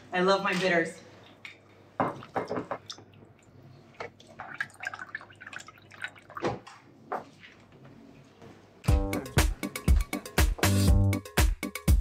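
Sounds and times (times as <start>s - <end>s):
juice pouring into glass: 3.5s - 6.4s.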